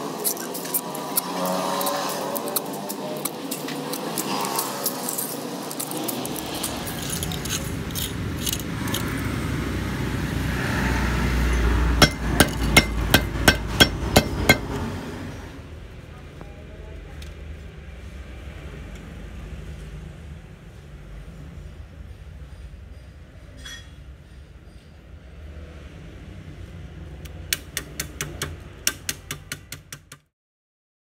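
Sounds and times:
copper windings scraped out: 0.0 - 9.4
sharp metallic taps: 12.0 - 14.8, 27.5 - 30.3.

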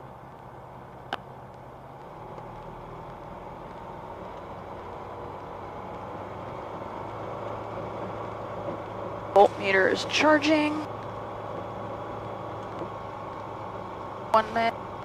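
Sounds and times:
aircraft engine idling: 6.1 - 15.0.

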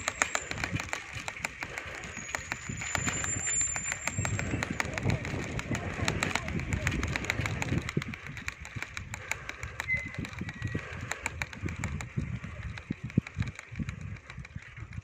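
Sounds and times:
bicycle rattling clicks: 0.0 - 15.0
wind and road rumble on microphone: 0.0 - 15.0.

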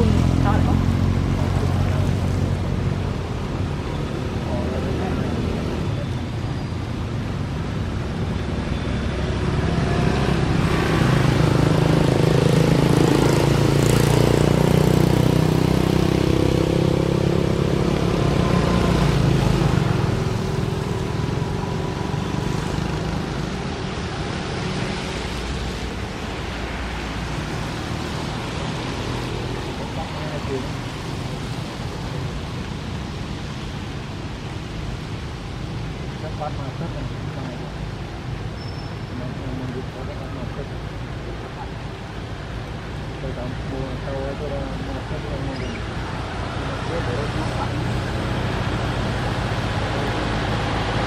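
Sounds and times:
outdoor background noise: 0.0 - 51.0
motor vehicle passing: 9.1 - 35.2.

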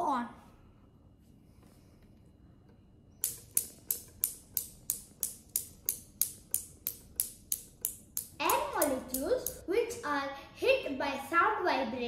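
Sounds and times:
steel balls clacking: 3.2 - 9.6.

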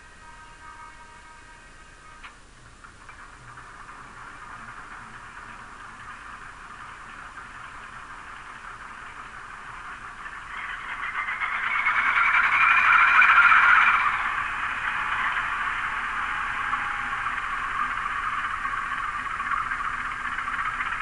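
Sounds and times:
diesel engine sound from small speaker: 0.0 - 21.0.

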